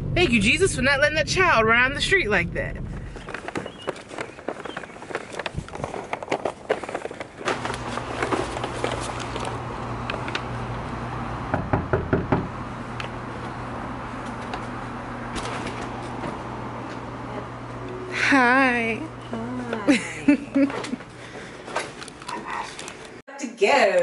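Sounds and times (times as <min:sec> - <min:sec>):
steady low hum: 0:00.0 - 0:23.2
footsteps on pavement: 0:02.9 - 0:09.4
knuckles knocking on a door: 0:11.5 - 0:12.5.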